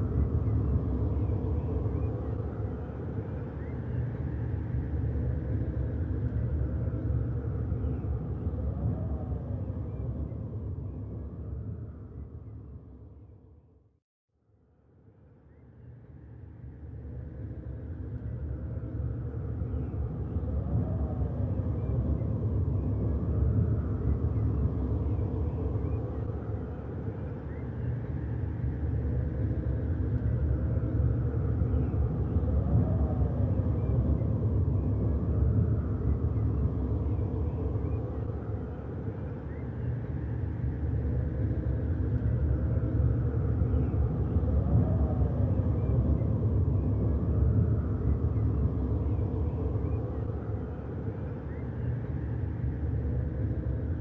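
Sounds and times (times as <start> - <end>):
low ambient rumble drone: 0.0 - 13.7, 15.0 - 54.0.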